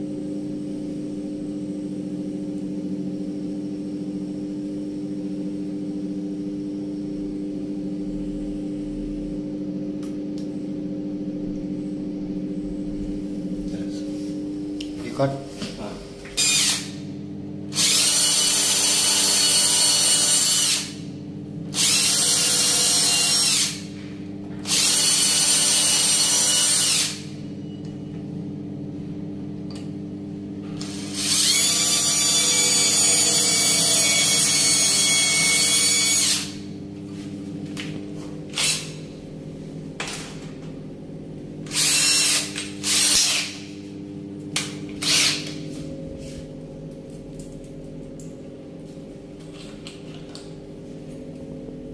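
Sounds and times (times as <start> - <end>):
steady low hum: 0.0 - 51.9
cordless drill boring into wood: 16.4 - 16.9, 17.8 - 21.0, 21.8 - 23.8, 24.6 - 27.2, 30.9 - 36.6, 38.6 - 38.8, 41.7 - 43.6, 45.0 - 45.4.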